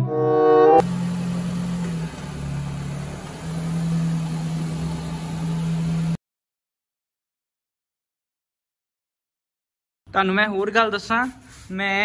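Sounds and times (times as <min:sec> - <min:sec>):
car engine idling: 0:00.8 - 0:06.2.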